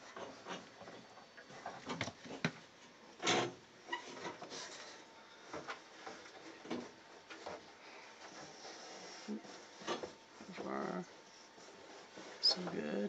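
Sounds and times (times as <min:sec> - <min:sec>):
metal clunks and scrapes: 0:03.2 - 0:07.7, 0:08.3 - 0:10.2.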